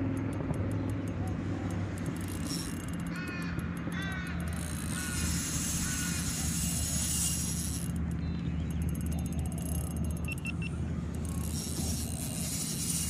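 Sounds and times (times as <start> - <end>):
steady low hum: 0.0 - 13.0
crow cawing: 3.1 - 6.4.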